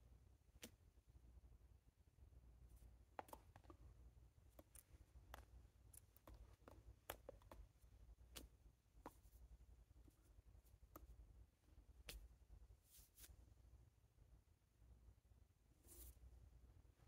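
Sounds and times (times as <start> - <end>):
low room hum: 0.0 - 17.0
faint clicks and taps: 2.8 - 12.4.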